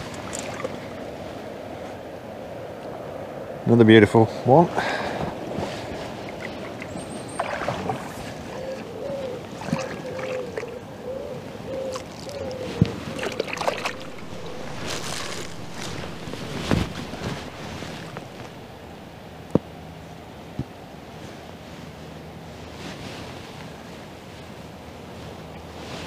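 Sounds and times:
river water rushing: 0:00.0 - 0:02.4, 0:04.7 - 0:21.0
faint wavering tone: 0:08.5 - 0:20.1.

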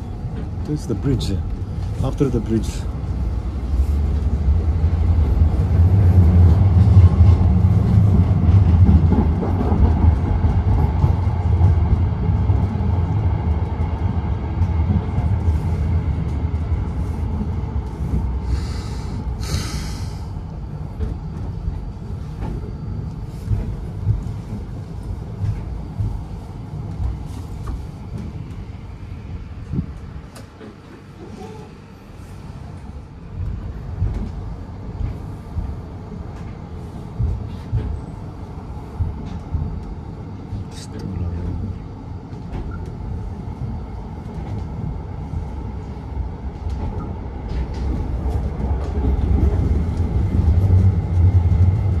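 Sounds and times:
tram rumbling on rails: 0:00.0 - 0:52.0
short hisses: 0:18.5 - 0:20.3.

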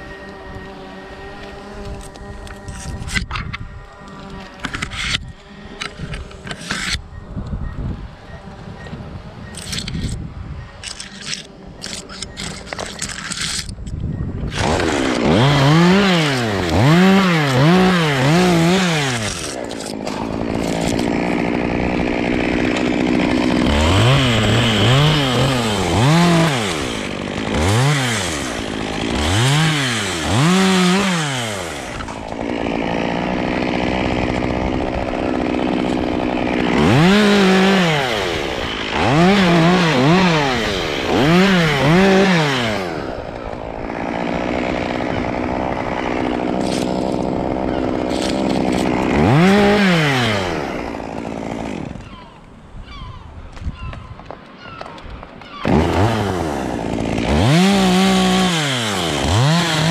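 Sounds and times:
chainsaw engine revving: 0:14.5 - 0:52.2, 0:55.6 - 0:59.9.

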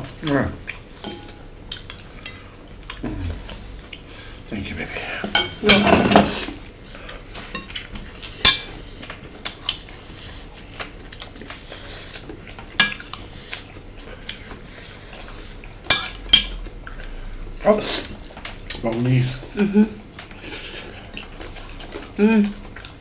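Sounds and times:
cutlery clinking on ceramic bowls: 0:01.0 - 0:01.5, 0:05.2 - 0:06.4.

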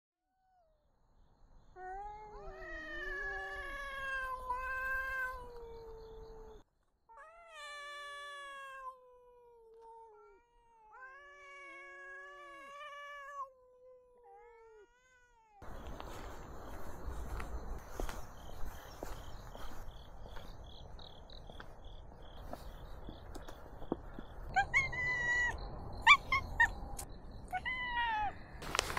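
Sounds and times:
cats yowling: 0:01.8 - 0:15.8, 0:24.5 - 0:26.8, 0:27.5 - 0:28.4.

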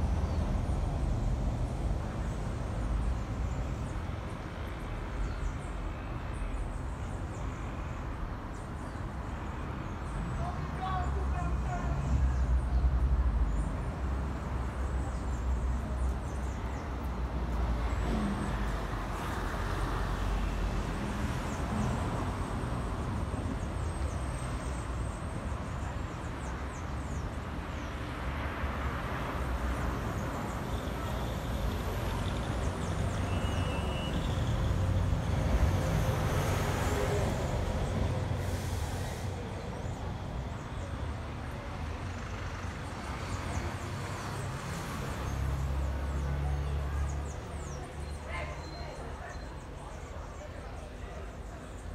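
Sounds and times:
low rumble of passing vehicles: 0:00.0 - 0:51.9.

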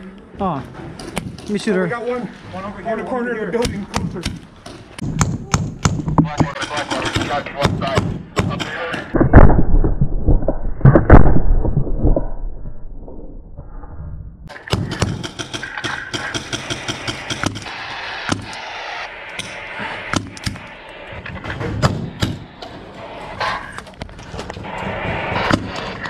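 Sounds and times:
sharp paintball pops: 0:14.5 - 0:17.7, 0:18.3 - 0:18.6.

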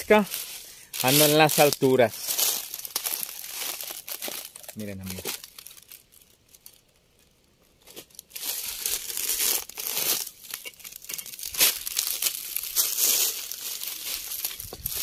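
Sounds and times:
rustling and crunching of dry material: 0:00.0 - 0:15.0
sharp crack: 0:08.8 - 0:14.7.

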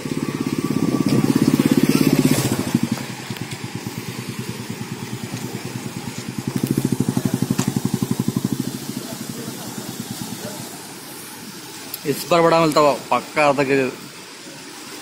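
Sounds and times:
motorcycle engine running: 0:00.0 - 0:11.9.

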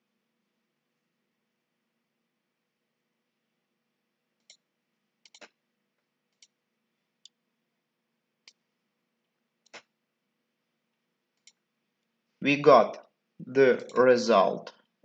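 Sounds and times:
computer mouse clicking: 0:04.4 - 0:04.6, 0:05.2 - 0:05.6, 0:06.3 - 0:06.6, 0:09.6 - 0:09.9, 0:11.4 - 0:11.6.

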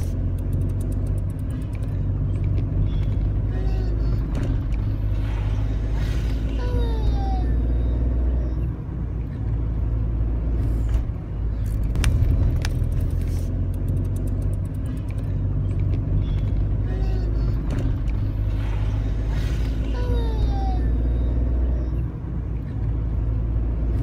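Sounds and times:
car engine and tyres rumbling: 0:00.0 - 0:24.0
sharp clicks: 0:00.3 - 0:03.2, 0:11.6 - 0:16.6.

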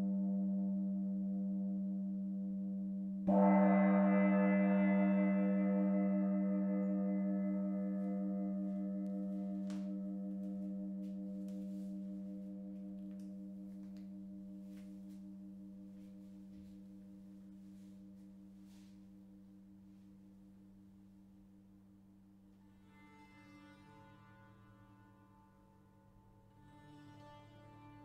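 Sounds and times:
metal gong ringing: 0:03.3 - 0:17.1.

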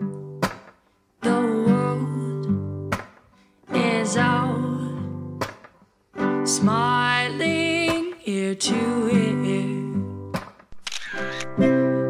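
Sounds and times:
acoustic guitar strummed and plucked: 0:00.0 - 0:12.0
sharp clicks: 0:10.4 - 0:11.6.

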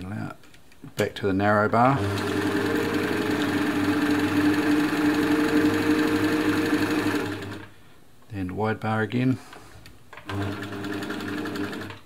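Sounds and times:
sewing machine running: 0:01.8 - 0:07.7, 0:10.3 - 0:12.0.

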